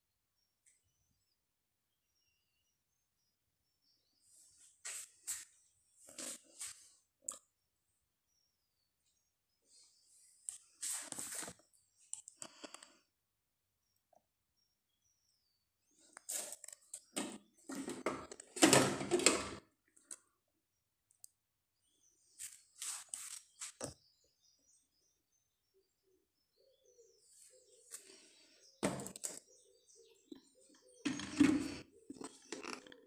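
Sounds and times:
plastic parts clicking and knocking: 16.2 - 20.2.

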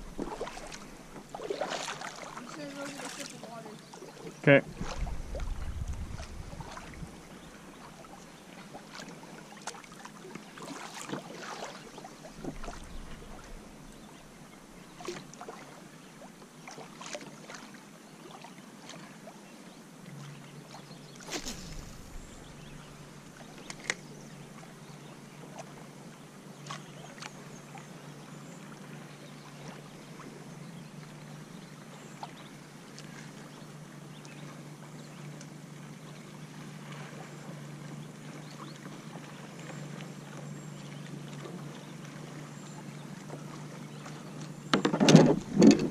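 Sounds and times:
water lapping against kayak hull: 0.0 - 45.9
faint low hum: 2.0 - 7.9
light knocks on boat: 44.4 - 45.9.

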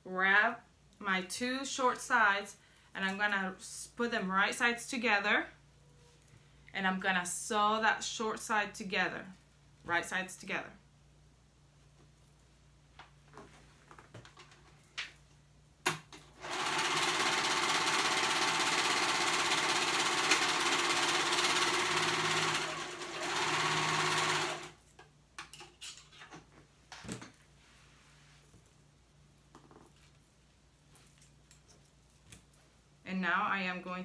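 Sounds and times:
overlock machine stitching: 16.4 - 24.8.

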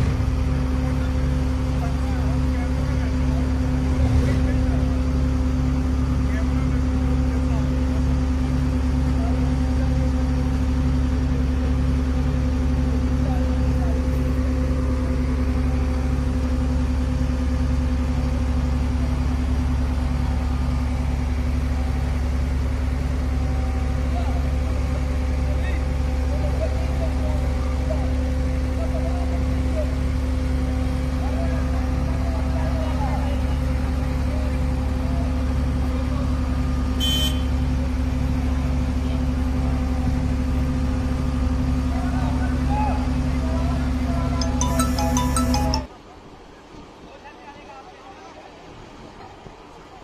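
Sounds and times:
crane diesel engine droning: 0.0 - 46.0
short high-pitched ping: 44.4 - 45.9.

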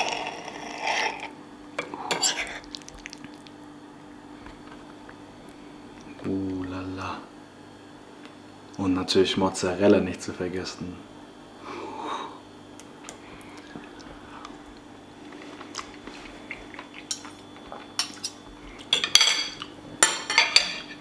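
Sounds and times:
cutlery clinking on a plate: 18.0 - 21.0.

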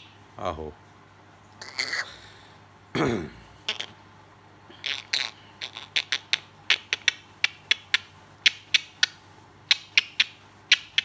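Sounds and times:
parrot clicking beak and tongue: 4.8 - 11.0.

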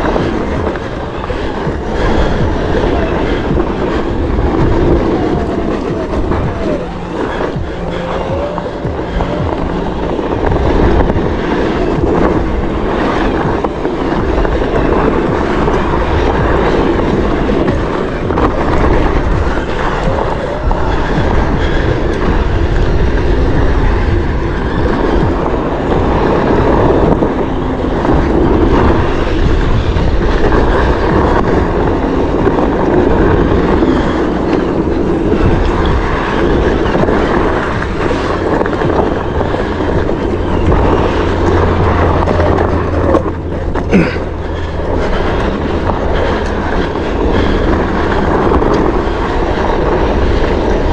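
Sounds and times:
tyre rolling over dirt trail: 0.0 - 50.9
wind rushing over microphone: 0.0 - 50.9.

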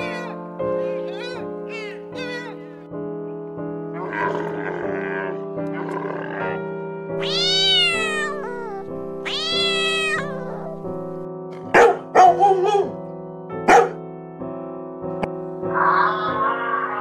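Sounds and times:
cat meowing: 0.0 - 2.8, 7.2 - 11.2
background music: 0.0 - 17.0.

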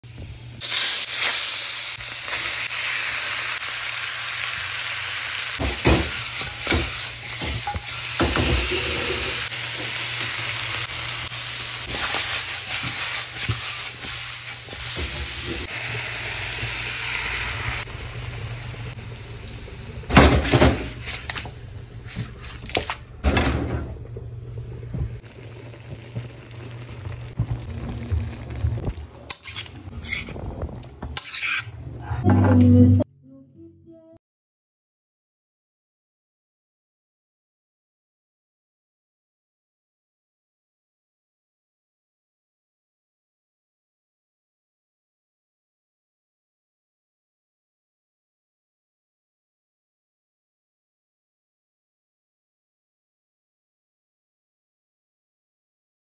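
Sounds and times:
chicken frying in hot oil: 0.6 - 22.2, 24.8 - 30.4
scraping against metal pot: 29.3 - 32.3.

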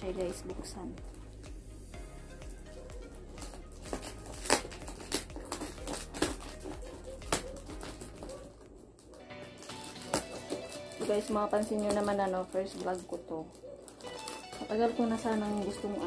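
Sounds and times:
crinkling plastic: 3.0 - 16.0
scissors snipping: 3.4 - 16.0.

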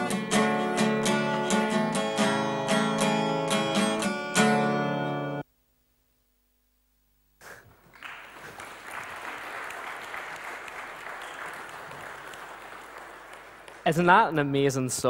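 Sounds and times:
congregation applauding: 7.8 - 15.0.

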